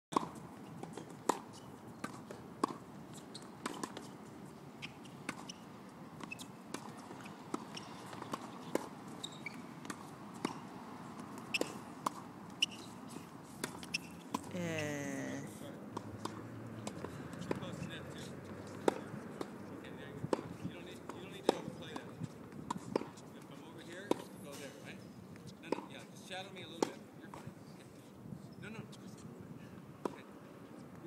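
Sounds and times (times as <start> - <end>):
tennis ball bouncing: 0.1 - 4.2, 4.8 - 14.6, 16.0 - 17.8, 18.6 - 19.6, 20.2 - 23.2, 24.1 - 24.3
racket striking ball: 6.2 - 8.9, 18.7 - 19.5, 21.5 - 22.1.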